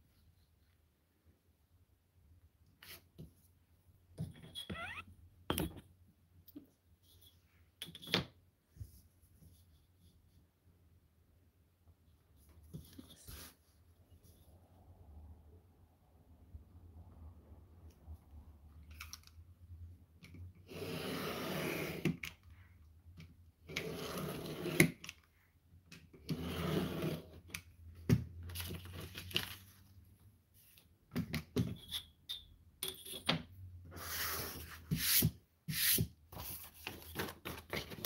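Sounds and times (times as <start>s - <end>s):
paper rustling: 36.3s - 38.0s.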